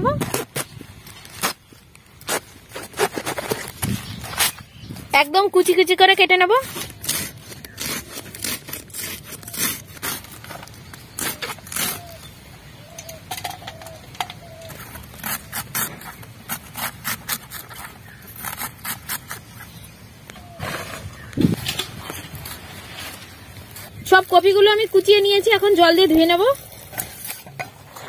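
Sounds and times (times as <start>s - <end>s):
blade slicing cabbage: 6.6s - 12.2s, 15.0s - 19.8s.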